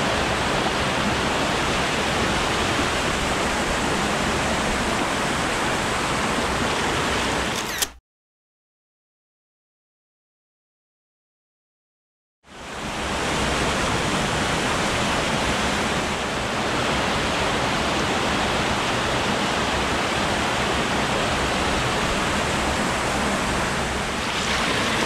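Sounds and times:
water rushing over rocks: 0.0s - 7.5s, 12.6s - 25.0s.

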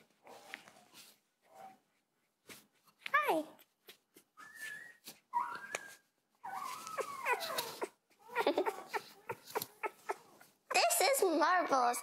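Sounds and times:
puppy squeaking and whimpering: 5.3s - 10.8s.

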